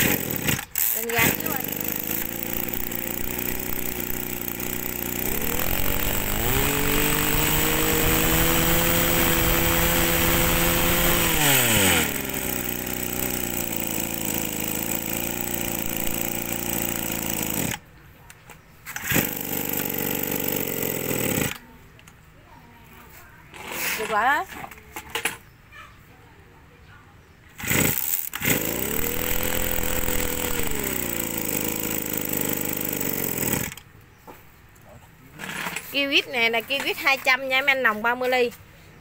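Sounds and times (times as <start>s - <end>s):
brush cutter engine revving: 0.0s - 17.8s, 18.9s - 21.7s, 27.6s - 33.9s.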